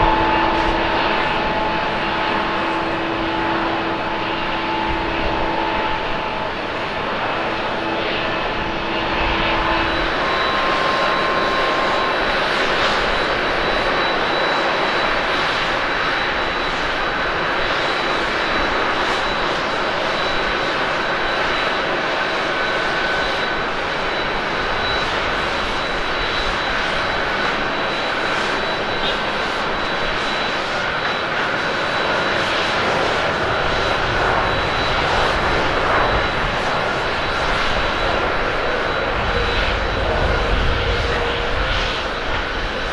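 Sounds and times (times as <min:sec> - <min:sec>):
jet engine roar with whine: 0:00.0 - 0:42.9.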